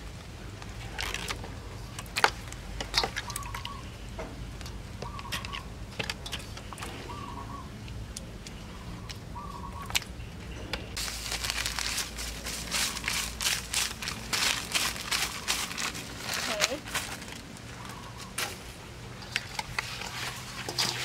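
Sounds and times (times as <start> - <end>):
bird chirp: 5.0 - 5.7, 6.9 - 7.8, 8.5 - 11.0.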